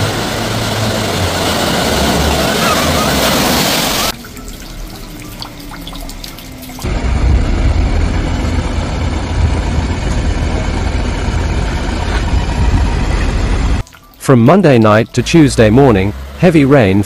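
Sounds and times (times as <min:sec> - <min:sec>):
floodwater rushing: 0:00.0 - 0:06.9, 0:13.8 - 0:17.0.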